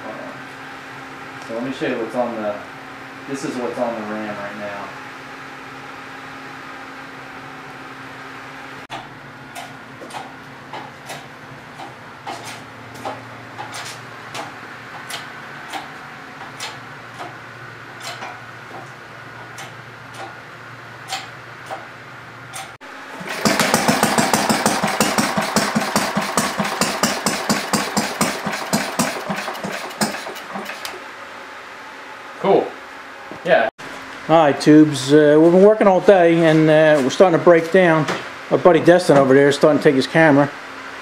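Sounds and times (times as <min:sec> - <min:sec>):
small engine running: 0:23.0 - 0:31.0.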